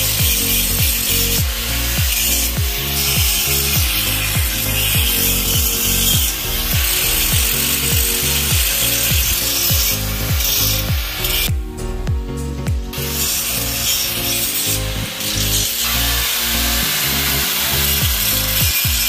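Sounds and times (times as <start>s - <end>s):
angle grinder grinding steel: 0.0s - 19.0s
background music with low beat: 0.0s - 19.0s.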